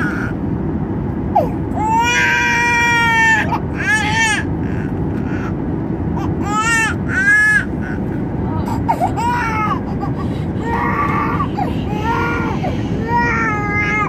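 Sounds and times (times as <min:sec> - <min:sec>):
airplane cabin rumble: 0:00.0 - 0:14.0
baby crying: 0:08.7 - 0:14.0.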